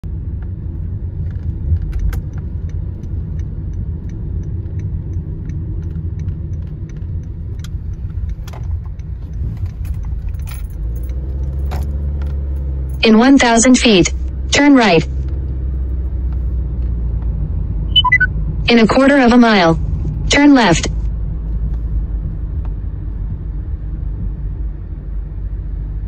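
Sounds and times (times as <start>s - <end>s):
car engine and tyres rumbling: 0.0s - 26.0s
light ticking rattles: 1.8s - 13.0s.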